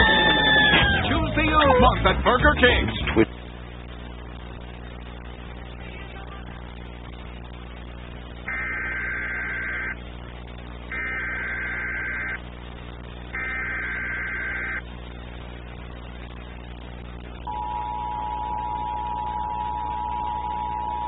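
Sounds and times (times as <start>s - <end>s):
mains hum: 0.0s - 21.0s
two-tone attention signal: 17.5s - 21.0s.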